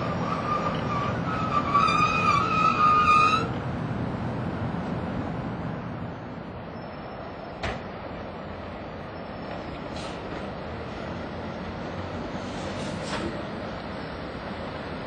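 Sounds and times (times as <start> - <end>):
wheel squeal: 0.0 - 3.6
train rolling rumble: 0.0 - 15.0.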